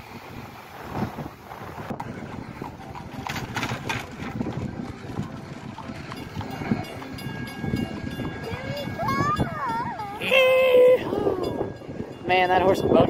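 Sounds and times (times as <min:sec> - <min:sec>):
wind on microphone: 0:00.0 - 0:13.0
horse hooves clip-clopping on road: 0:00.4 - 0:10.0.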